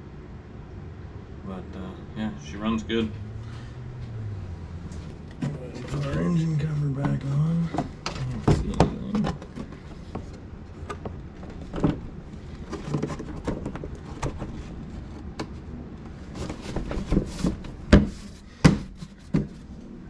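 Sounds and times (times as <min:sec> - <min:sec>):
plastic cover knocking and clicking: 0:07.7 - 0:12.1, 0:12.7 - 0:14.6.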